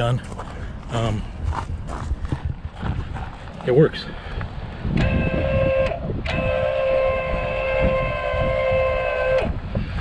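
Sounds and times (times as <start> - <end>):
electric motor whining: 4.9 - 9.6.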